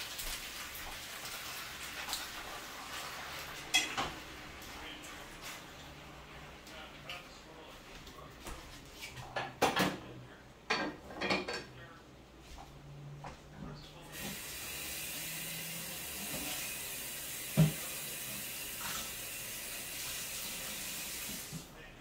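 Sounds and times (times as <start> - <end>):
pot and utensils clattering: 2.0 - 4.3, 10.7 - 11.8
tap running into sink: 16.1 - 18.1.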